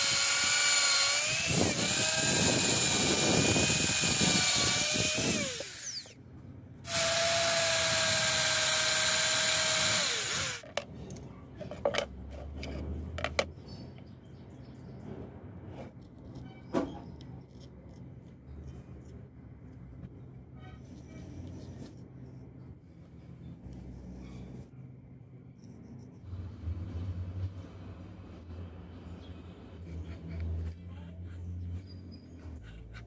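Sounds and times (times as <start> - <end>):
cordless drill motor whining: 0.0 - 6.2, 6.9 - 10.6.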